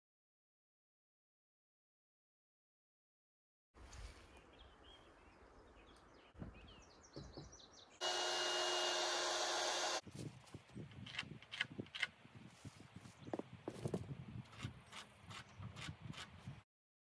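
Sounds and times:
birds chirping: 0:04.2 - 0:08.5
power tool motor running: 0:08.0 - 0:10.0.

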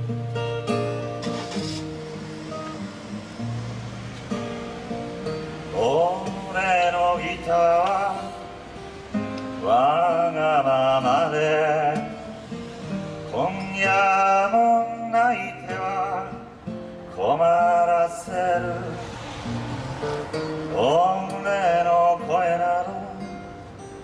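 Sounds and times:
strummed acoustic guitar: 0:00.0 - 0:24.0
man singing: 0:05.6 - 0:08.6, 0:09.5 - 0:19.1, 0:20.6 - 0:23.6.

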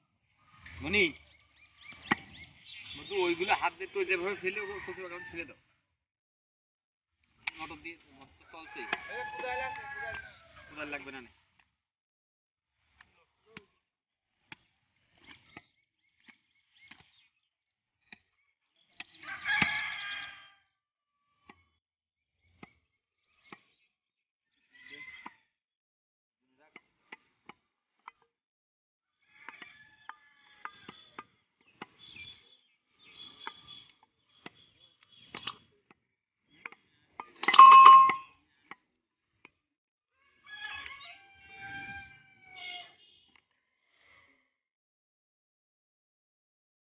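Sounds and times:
cleaver chopping meat on wood: 0:02.0 - 0:02.3
rooster crowing: 0:08.5 - 0:10.6, 0:19.2 - 0:20.6, 0:40.2 - 0:43.0.

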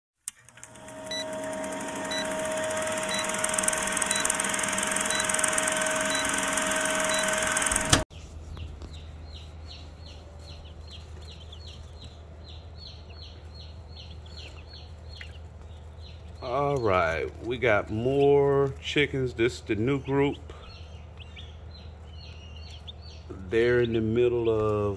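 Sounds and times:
low hum: 0:00.5 - 0:08.0
baby chicks peeping: 0:00.6 - 0:24.9
countdown hiss with held tone: 0:02.1 - 0:07.9.

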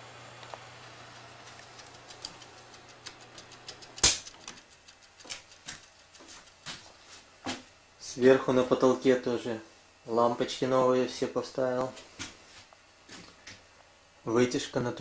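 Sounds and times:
electric heater humming: 0:00.0 - 0:15.0
timer switch ticking: 0:00.9 - 0:06.6.

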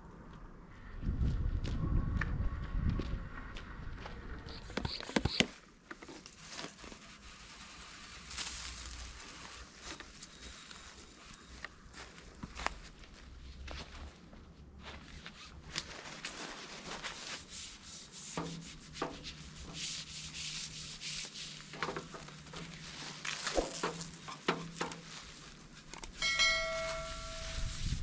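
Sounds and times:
brush rubbing and scraping: 0:06.1 - 0:11.4, 0:15.0 - 0:28.0
chime with click: 0:26.1 - 0:27.6.

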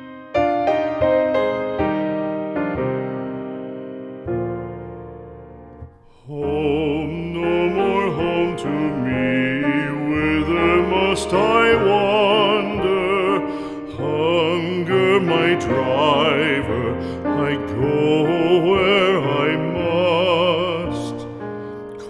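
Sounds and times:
piano accompaniment: 0:00.0 - 0:22.0
piano chord: 0:00.0 - 0:22.0
classical singing voice: 0:05.8 - 0:22.0.

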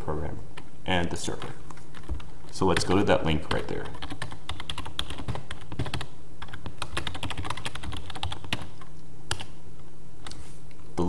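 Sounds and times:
typing on computer keyboard: 0:01.7 - 0:09.5.

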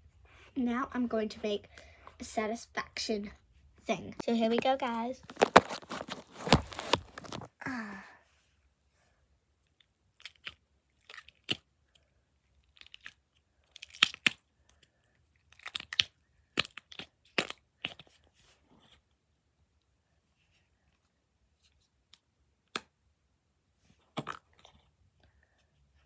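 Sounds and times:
slime crackly pops and clicks: 0:13.8 - 0:14.4.

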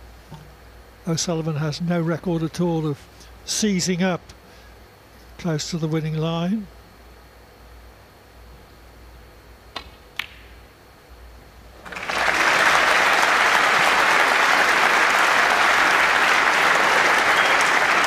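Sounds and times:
audience applause: 0:11.8 - 0:18.0.

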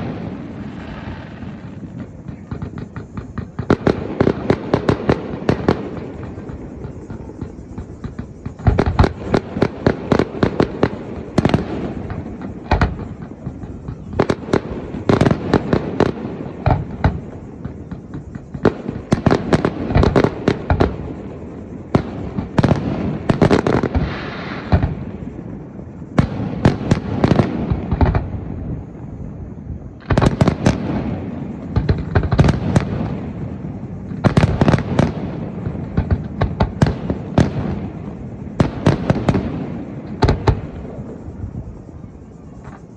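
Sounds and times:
firework sharp cracks: 0:00.0 - 0:25.4
firework deep booms: 0:00.0 - 0:42.0.

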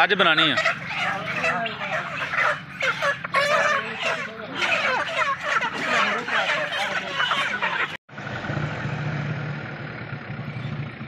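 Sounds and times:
chickens squawking and clucking: 0:00.0 - 0:08.0
vehicle engine humming: 0:00.0 - 0:11.0.

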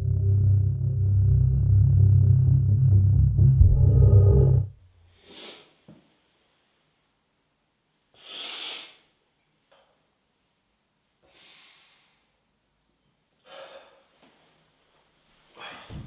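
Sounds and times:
man breathing heavily: 0:13.4 - 0:14.2, 0:15.5 - 0:16.0.

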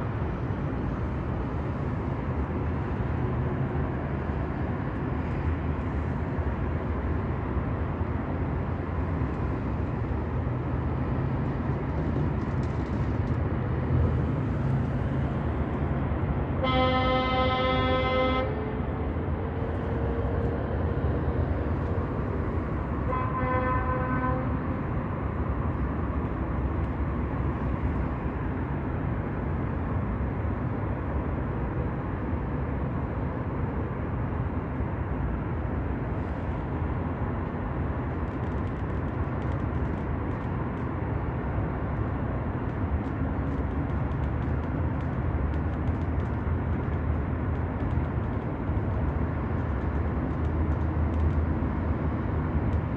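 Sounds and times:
low outdoor rumble: 0:00.0 - 0:52.9
vehicle horn toot: 0:16.6 - 0:18.6, 0:23.1 - 0:24.5.

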